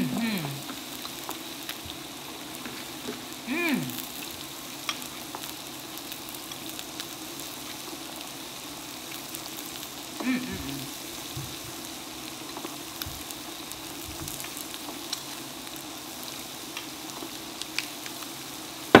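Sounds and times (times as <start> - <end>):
person humming: 0.0 - 0.7, 3.4 - 4.1, 10.2 - 11.0
beef sizzling on grill: 0.0 - 19.0.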